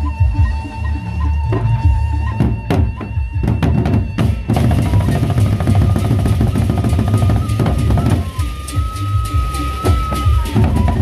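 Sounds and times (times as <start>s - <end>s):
barrel drums beaten with sticks: 2.4s - 11.0s.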